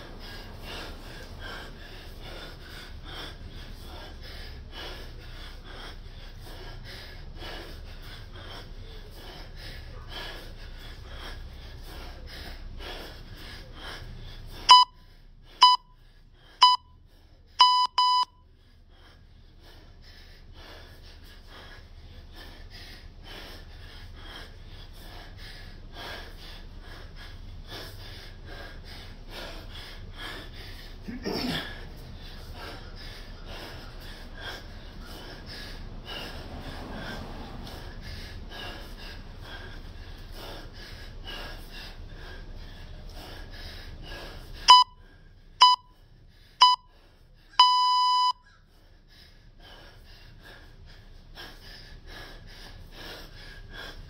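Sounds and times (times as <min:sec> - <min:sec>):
man breathing hard: 0:00.0 - 0:54.0
interval timer beeps: 0:14.7 - 0:15.0, 0:15.6 - 0:16.0, 0:16.6 - 0:17.0, 0:17.6 - 0:18.4, 0:44.7 - 0:45.0, 0:45.6 - 0:46.0, 0:46.6 - 0:46.9, 0:47.6 - 0:48.4.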